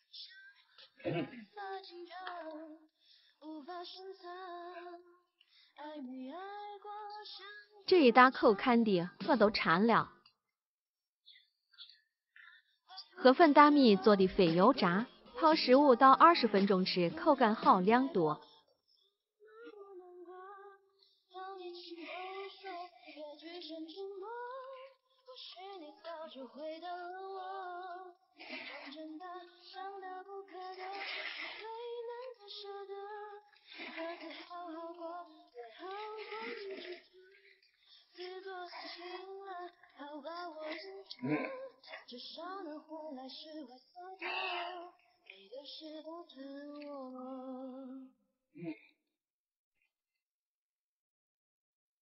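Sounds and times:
woman singing slow pop song: 0.0s - 5.1s, 5.8s - 9.5s, 19.5s - 37.4s, 38.2s - 48.1s
person singing: 1.0s - 5.0s, 38.2s - 48.8s.

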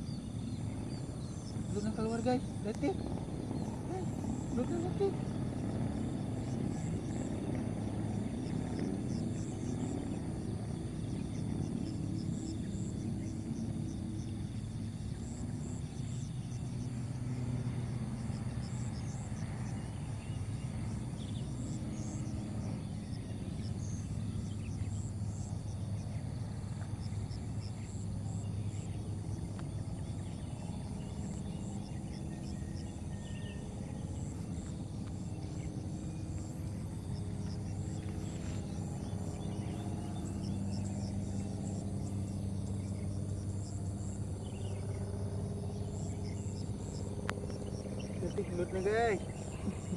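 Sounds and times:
insect chirping: 0.0s - 49.9s
steady low rumble: 0.0s - 49.9s.

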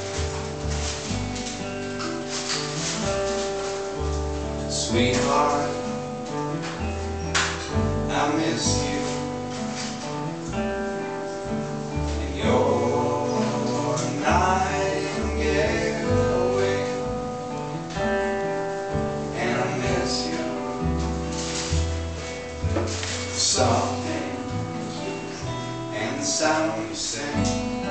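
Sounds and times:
plucked double bass: 0.0s - 27.9s
strummed acoustic guitars: 0.0s - 27.9s.

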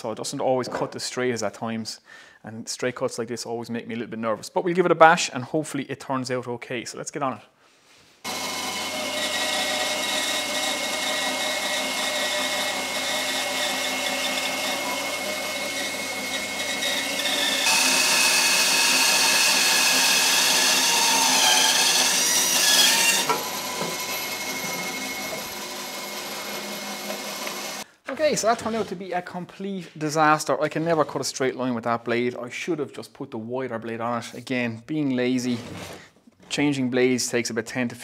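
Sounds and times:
bandsaw cutting wood: 8.2s - 27.9s.

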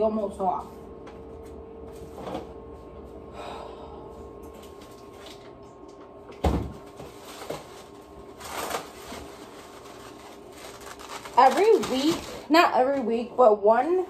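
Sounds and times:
faint steady hum: 0.0s - 14.0s
things shifted in refrigerator: 1.3s - 3.2s, 6.3s - 13.3s.

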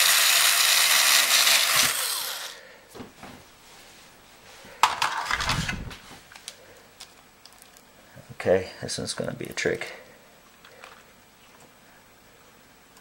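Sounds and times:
power screwdriver running: 0.0s - 2.6s
rustle of plastic and metal parts: 4.8s - 7.9s.

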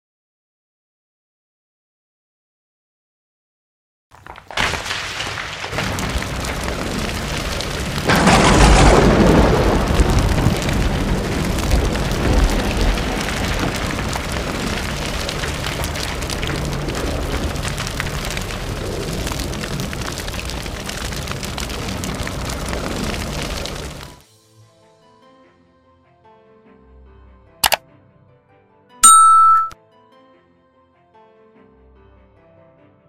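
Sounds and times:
crackling rumbling noise: 4.2s - 24.2s
loud crash-like burst: 4.6s - 15.0s.

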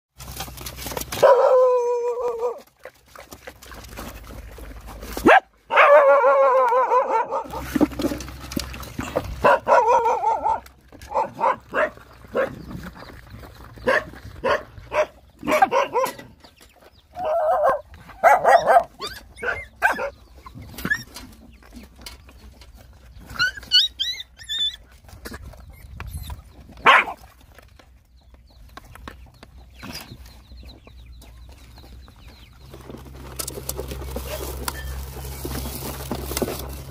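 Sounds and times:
puppies barking and yipping: 0.2s - 36.9s
puppies yelping: 0.8s - 21.8s, 23.2s - 27.3s, 32.6s - 36.9s
dogs whining: 1.1s - 2.7s, 8.9s - 12.7s, 17.1s - 21.4s, 23.2s - 27.2s, 34.1s - 35.3s.

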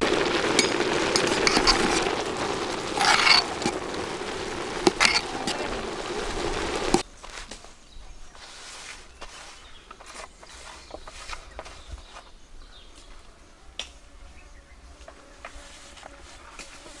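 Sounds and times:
metal ladle scraping rice pot: 1.2s - 2.0s, 3.0s - 3.8s, 4.9s - 5.6s.

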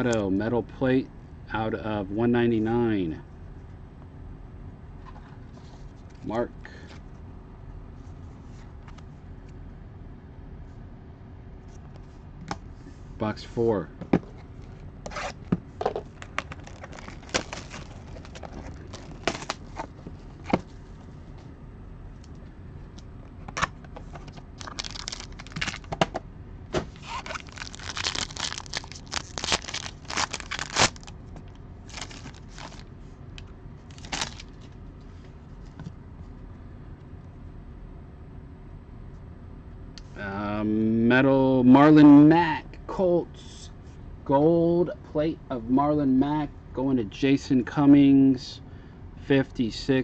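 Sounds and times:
cards being handled: 14.4s - 20.7s, 26.8s - 34.8s
shrink-wrap and cardboard tearing: 16.1s - 19.9s, 24.6s - 25.9s, 26.9s - 32.9s, 33.9s - 34.6s.

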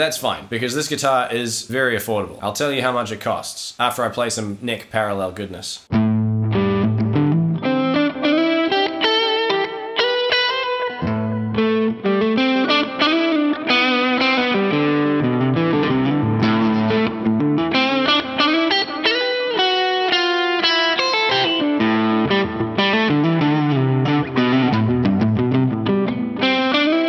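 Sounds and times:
electric guitar through amp: 5.9s - 27.0s.

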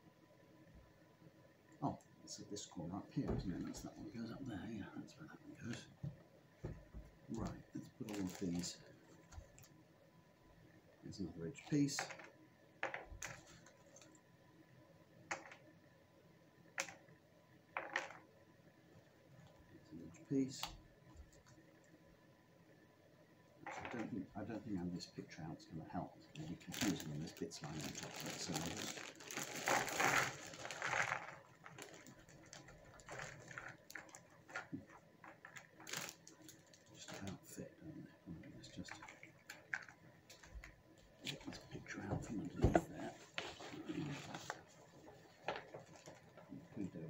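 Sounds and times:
plastic bag crinkling: 7.4s - 8.8s, 26.4s - 37.4s, 43.4s - 46.4s.

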